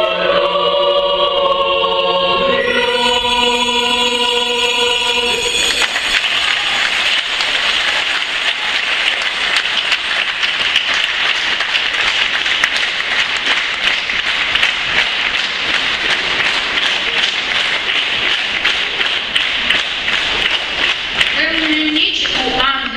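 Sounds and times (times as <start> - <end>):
audience applauding: 5.4 - 22.6.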